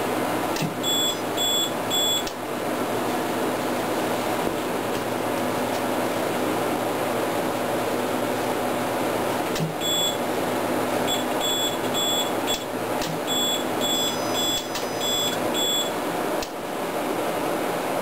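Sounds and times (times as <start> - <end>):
equipment fans whirring: 0.0 - 18.0
high electronic alarm beeping: 0.8 - 2.3, 9.8 - 10.2, 11.1 - 12.6, 13.3 - 15.9.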